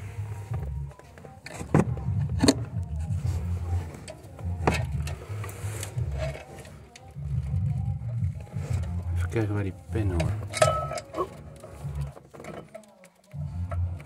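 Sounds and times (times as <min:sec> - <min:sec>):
low uneven hum: 0:00.0 - 0:14.0
metal clinks and knocks: 0:10.2 - 0:11.6.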